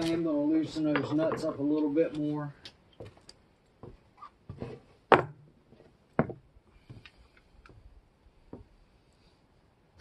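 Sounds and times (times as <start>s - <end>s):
boots stepping on wooden boards: 3.0s - 7.1s.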